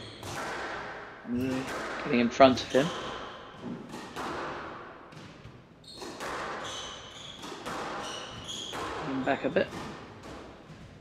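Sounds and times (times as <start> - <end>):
shoes squeaking on floor: 0.0 - 0.3, 2.4 - 4.0, 5.4 - 10.0
squash ball hit by rackets: 0.0 - 11.0.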